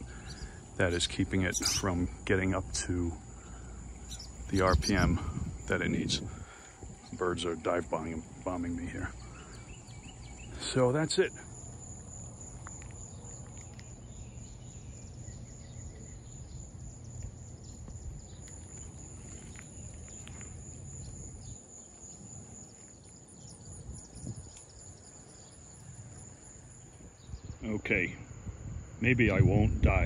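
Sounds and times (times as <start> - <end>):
faint bird trill: 0.0 - 2.2, 2.8 - 5.6
insects droning: 0.0 - 30.0.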